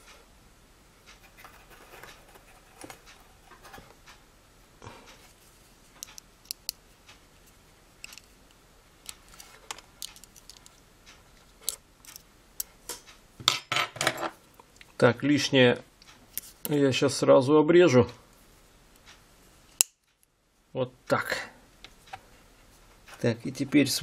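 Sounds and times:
small metal clicks and scraping: 8.0s - 8.4s, 9.0s - 13.2s.

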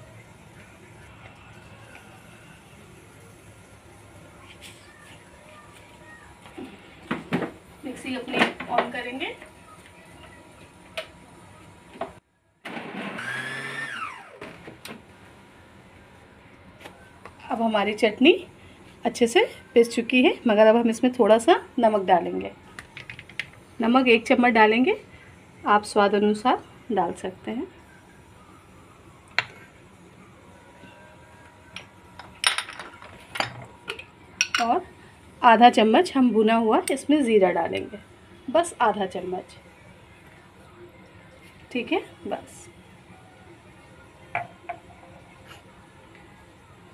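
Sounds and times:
mixer grinder motor whine: 12.7s - 14.7s.

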